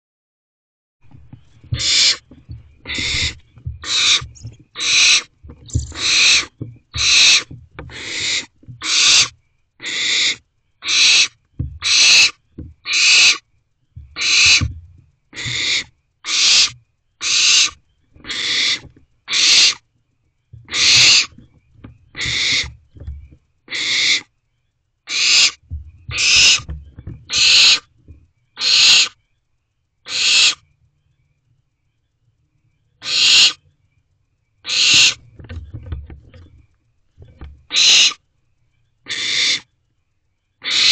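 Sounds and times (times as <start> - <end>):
low rumble of owlets moving: 1.0 - 40.9
owl chicks rasping hisses: 2.9 - 4.2, 4.8 - 13.4, 14.2 - 14.6, 15.4 - 19.8, 20.7 - 21.3, 25.1 - 26.7, 27.3 - 27.9, 28.6 - 29.2, 30.1 - 30.6, 33.0 - 33.6, 34.7 - 35.2, 37.7 - 38.2, 39.1 - 39.6, 40.6 - 40.9.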